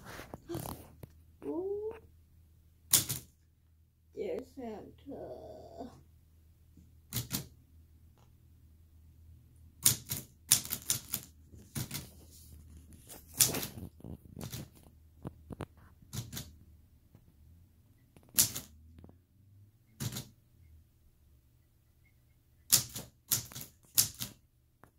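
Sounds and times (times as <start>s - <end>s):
manual typewriter keystrokes: 2.9s - 3.3s, 7.1s - 7.5s, 9.8s - 12.1s, 14.4s - 14.7s, 16.1s - 16.5s, 18.2s - 18.7s, 20.0s - 20.3s, 22.7s - 24.4s.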